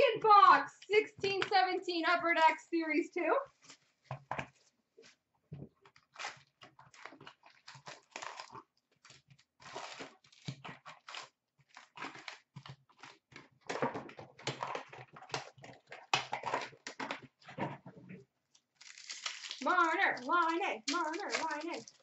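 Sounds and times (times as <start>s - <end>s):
card packs rustling and crinkling: 18.8s - 22.0s.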